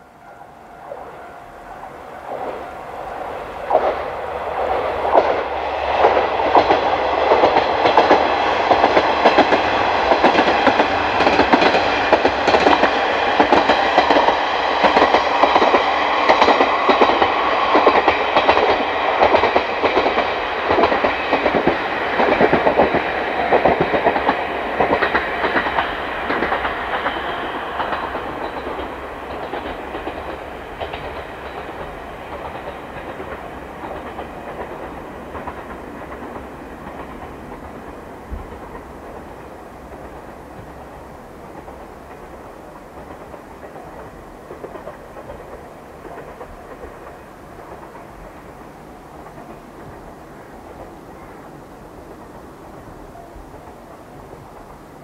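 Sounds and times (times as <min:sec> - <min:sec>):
diesel railcar running: 0:00.0 - 0:55.0.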